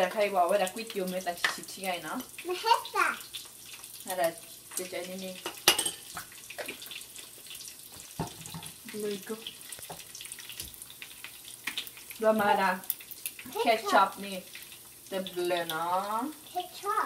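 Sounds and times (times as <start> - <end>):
metal spoon clinking against bowl: 5.4 - 6.1
containers knocked on countertop: 8.2 - 8.8.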